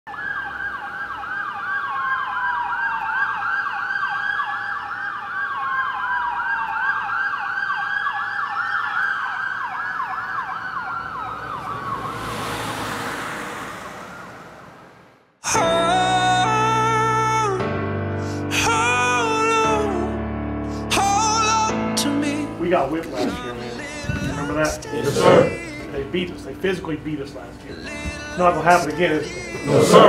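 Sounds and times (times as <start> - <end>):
siren yelping: 0.1 - 12.8, 13.8 - 15.0, 23.2 - 25.7
siren wailing: 0.1 - 15.0, 25.0 - 25.7.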